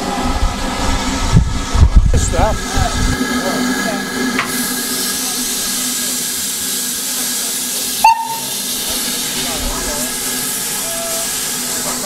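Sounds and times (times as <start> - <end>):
steam locomotive hissing: 0.0 - 12.0.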